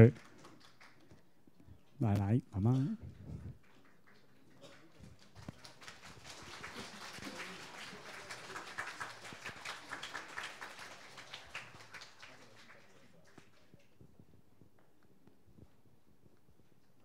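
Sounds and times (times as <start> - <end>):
faint scattered applause: 0.0 - 1.7, 3.5 - 14.2.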